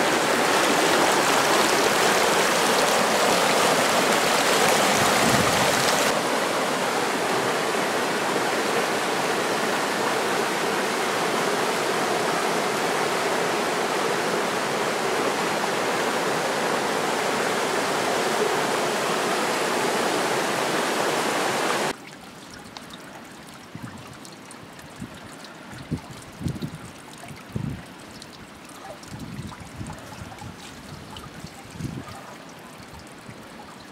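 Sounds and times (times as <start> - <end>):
stream rushing over rocks: 0.0 - 33.9
faint water trickle: 21.9 - 33.9.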